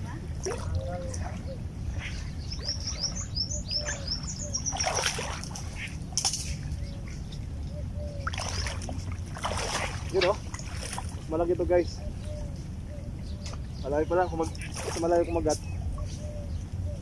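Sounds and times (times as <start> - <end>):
splashy noises: 0.3 - 2.4, 4.1 - 6.7, 8.2 - 11.4, 14.5 - 15.5
bird chirping: 0.8 - 8.8.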